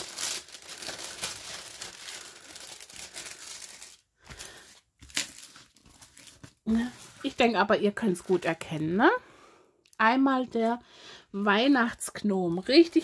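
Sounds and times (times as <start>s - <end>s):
plastic film crinkling: 0.0s - 8.8s.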